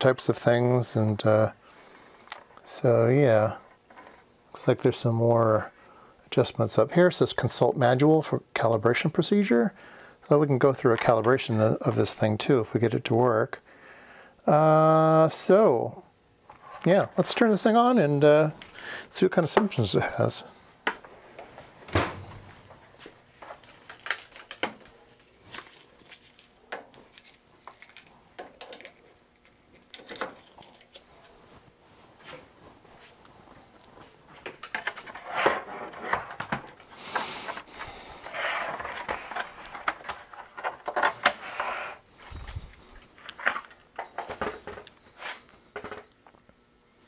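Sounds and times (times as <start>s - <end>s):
clattering and rubbing: 34.5s - 46.0s.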